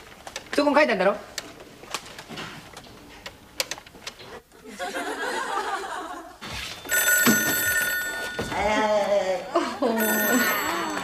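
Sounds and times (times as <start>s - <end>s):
audience laughter: 4.6s - 6.4s
old telephone bell ringing: 6.8s - 9.1s, 9.9s - 11.0s.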